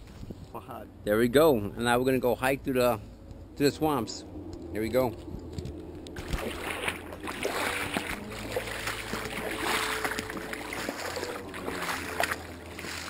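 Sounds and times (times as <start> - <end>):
wading through water splashing: 4.3 - 13.0.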